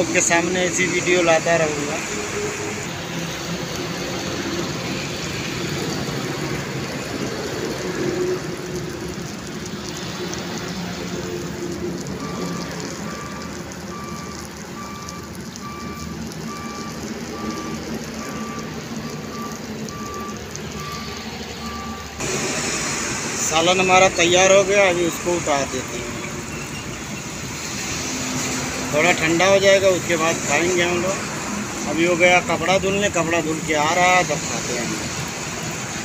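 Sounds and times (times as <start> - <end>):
curry sizzling and bubbling: 0.0 - 36.0
high electronic beep: 19.3 - 22.1.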